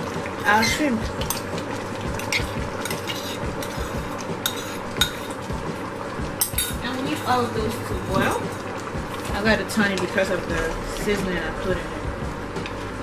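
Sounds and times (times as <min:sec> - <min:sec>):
spoon stirring and scraping pot: 0:02.2 - 0:05.5
metal clinking against pot: 0:02.3 - 0:05.4.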